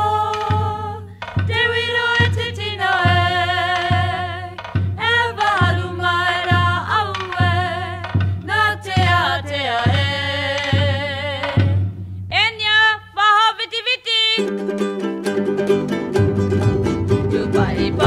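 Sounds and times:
steady low beat: 0:00.0 - 0:12.4
plucked string instrument strumming: 0:14.4 - 0:18.0
sung melody: 0:14.4 - 0:18.0.

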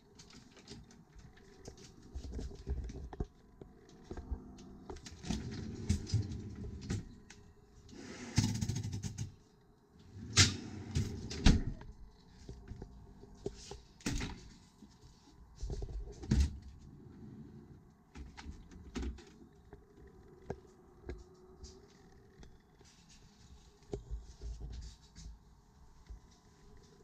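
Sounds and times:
refrigerator drawer and doors clunking: 0:10.2 - 0:11.8.

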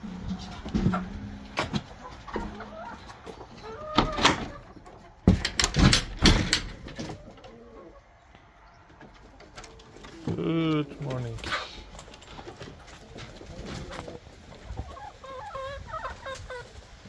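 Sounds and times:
knocks of wooden door and latch: 0:05.2 - 0:07.2.

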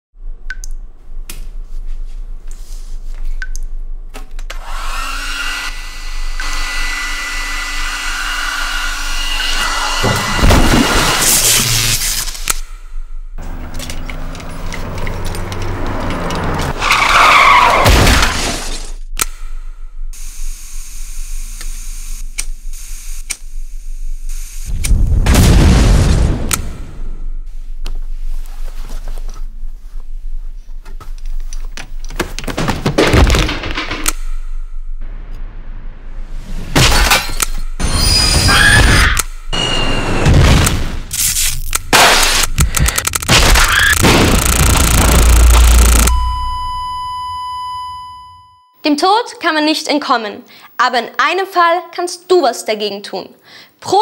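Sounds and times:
hair dryer running: 0:04.6 - 0:11.2
gas explosion blast: 0:24.8 - 0:27.1
loud low rumble: 0:34.9 - 0:36.8.

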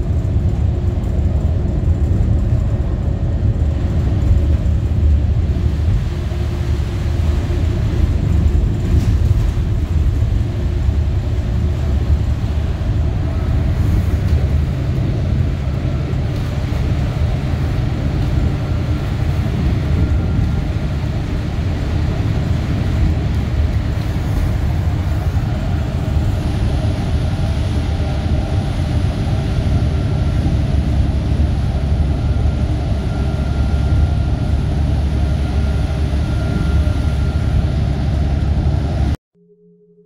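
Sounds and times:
bus engine and road rumble: 0:00.0 - 0:39.2
faint high whine: 0:11.9 - 0:40.0.

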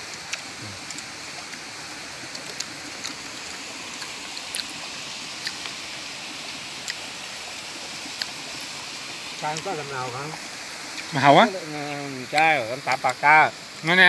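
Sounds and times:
stream water rushing: 0:00.0 - 0:14.0.

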